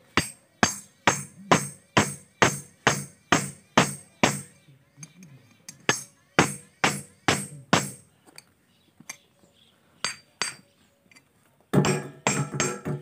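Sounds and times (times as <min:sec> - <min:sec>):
hammer striking steel axe head: 0:11.8 - 0:13.0.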